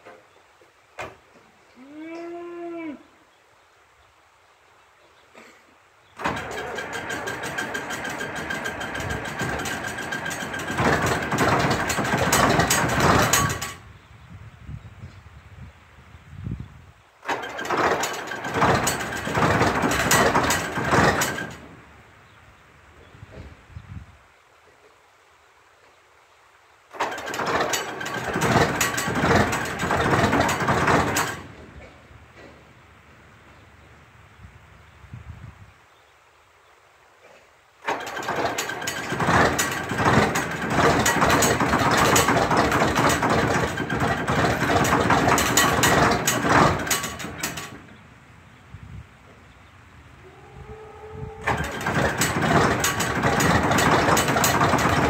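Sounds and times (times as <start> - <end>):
diesel engine running rough: 6.2 - 13.8, 17.3 - 21.8, 26.9 - 31.8, 37.8 - 48.0, 51.4 - 55.0
diesel engine cranking on starter: 6.2 - 13.9, 17.2 - 21.9, 26.9 - 32.5, 37.8 - 48.0, 51.4 - 55.0.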